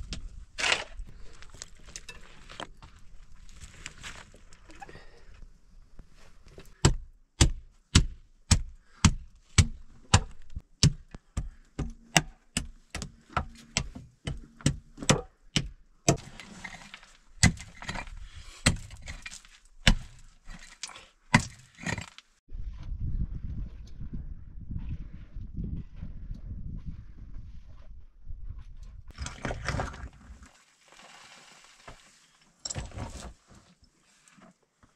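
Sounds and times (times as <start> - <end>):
soil and stones scraping: 0.0 - 6.8, 16.1 - 22.4, 28.8 - 34.9
pick striking stony earth: 6.7 - 22.3.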